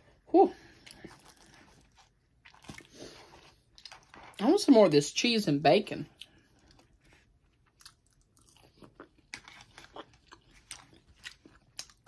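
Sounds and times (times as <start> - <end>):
chewing with mouth clicks: 0.7 - 4.4, 6.1 - 12.0.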